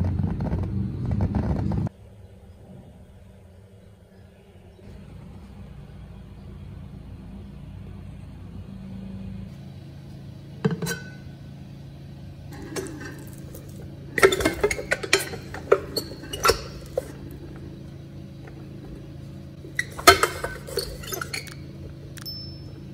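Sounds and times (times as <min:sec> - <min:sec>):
wooden paddle scraping metal pot: 0:12.5 - 0:17.6, 0:19.7 - 0:21.6
single clink: 0:22.2 - 0:22.9.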